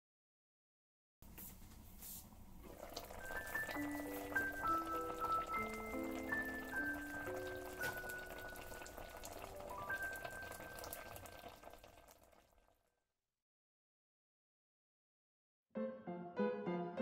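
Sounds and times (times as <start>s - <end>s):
soup simmering in a pan: 2.6s - 12.9s
slow background music: 3.0s - 11.2s, 15.8s - 17.0s.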